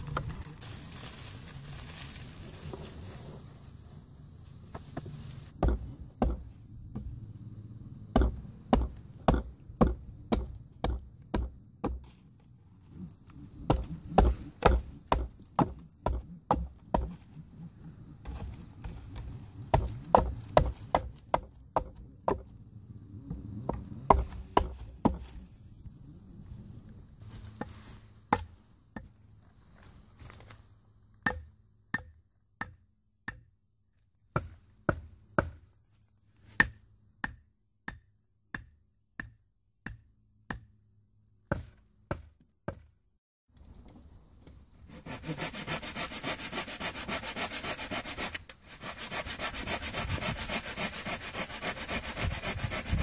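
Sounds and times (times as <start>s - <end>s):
hatchet striking wood: 5.6s - 7.1s, 8.1s - 12.2s, 13.7s - 17.2s, 18.2s - 22.5s, 23.7s - 25.3s, 31.2s - 33.6s, 36.6s - 40.8s, 41.4s - 42.9s.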